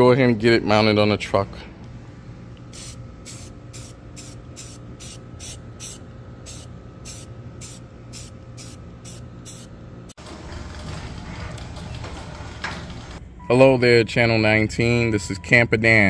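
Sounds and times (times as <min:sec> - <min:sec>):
spray paint can hissing: 0:02.7 - 0:09.7.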